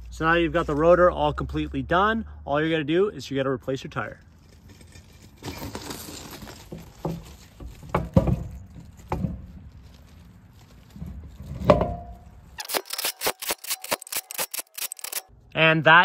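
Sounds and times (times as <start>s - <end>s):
metal knocks and clunks: 6.8s - 9.6s, 11.4s - 12.3s.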